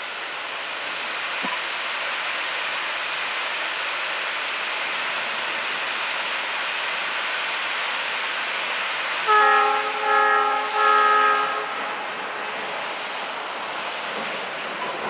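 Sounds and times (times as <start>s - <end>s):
steady rushing noise: 0.0s - 15.0s
steam locomotive whistle: 9.2s - 12.1s.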